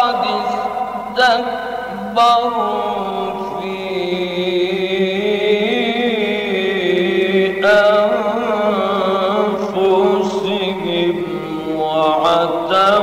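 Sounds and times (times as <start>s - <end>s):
man chanting recitation: 0.0s - 13.0s.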